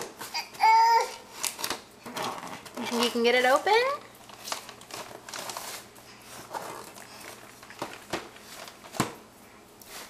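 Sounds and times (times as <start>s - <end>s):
paper rustling: 4.2s - 9.2s.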